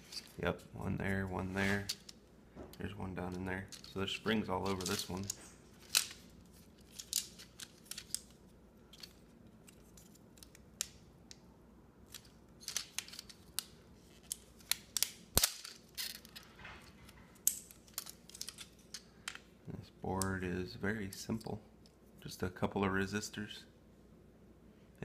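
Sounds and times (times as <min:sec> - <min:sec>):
plastic parts clicking and scraping: 0:01.5 - 0:11.0, 0:12.0 - 0:19.4
sharp plastic crack: 0:14.3 - 0:16.5.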